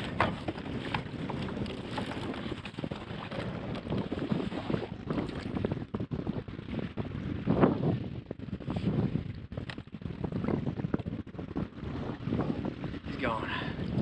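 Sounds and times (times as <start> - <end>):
knocks and splashes: 0.0 - 5.7
water lapping against hull: 0.0 - 14.0
wind buffeting microphone: 0.0 - 14.0.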